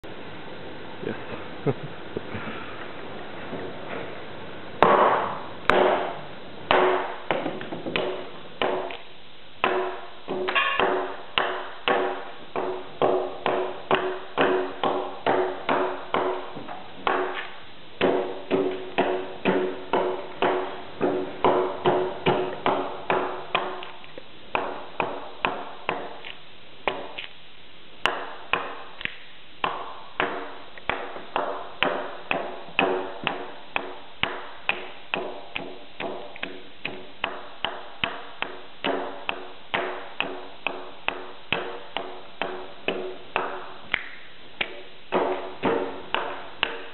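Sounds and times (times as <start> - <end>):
axe chopping wood: 4.8 - 9.0, 9.6 - 23.9, 28.0 - 46.9.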